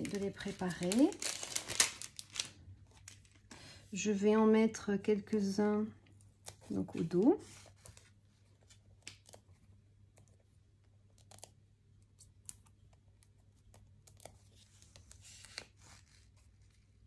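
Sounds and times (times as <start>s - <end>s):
paper rustling: 0.0s - 3.4s.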